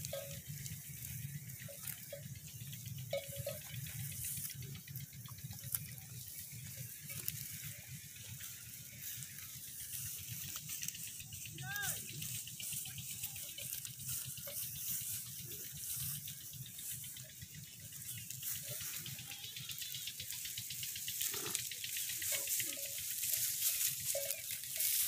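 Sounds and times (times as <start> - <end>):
short ringing tones: 0.0 - 5.3
cattle tearing grass: 0.0 - 25.0.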